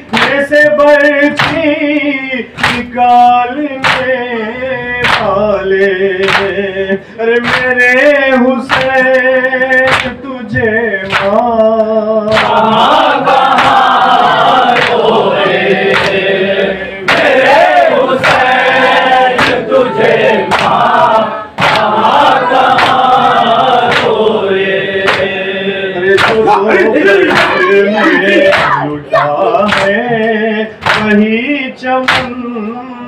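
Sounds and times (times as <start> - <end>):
rhythmic chest-beating: 0.0 - 33.0
group chanting in chorus: 11.0 - 31.3.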